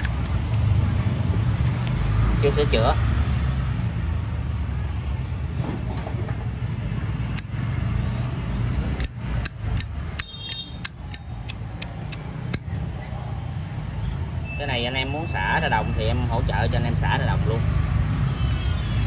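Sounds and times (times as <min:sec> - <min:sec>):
low traffic rumble: 0:00.0 - 0:19.0
lighter case metallic clicks: 0:09.0 - 0:12.6.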